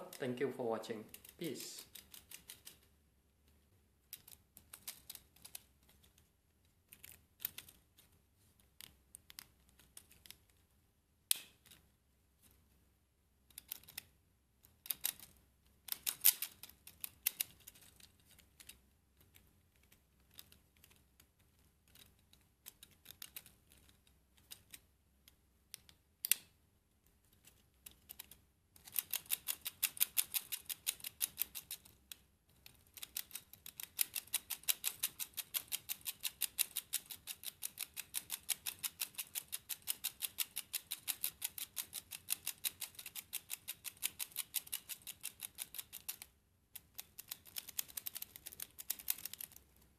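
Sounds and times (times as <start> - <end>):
plastic gears clicking: 1.1 - 2.9, 4.1 - 6.1, 6.9 - 7.8, 13.5 - 24.8, 27.5 - 49.7.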